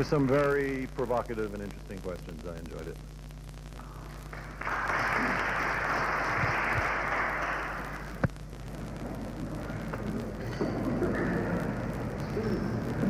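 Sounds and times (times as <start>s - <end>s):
low hum: 0.0s - 13.0s
audience applauding: 4.2s - 8.2s.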